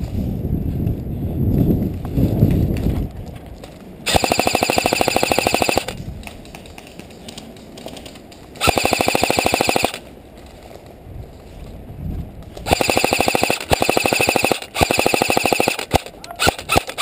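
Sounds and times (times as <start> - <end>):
airsoft rifle full-auto bursts: 4.1 - 6.0, 8.6 - 10.0, 12.7 - 17.0.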